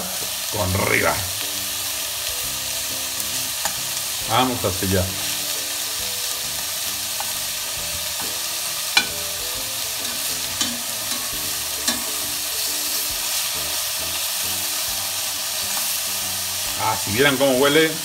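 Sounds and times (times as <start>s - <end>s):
meat sizzling in fat: 0.0s - 18.0s
metal tongs clicking on pot: 10.0s - 12.1s.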